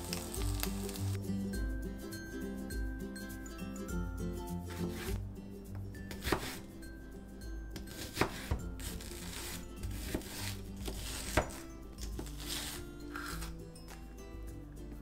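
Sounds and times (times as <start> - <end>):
light background music: 0.0 - 15.0
knife cutting onion: 4.7 - 5.2, 6.0 - 6.8, 7.8 - 14.1.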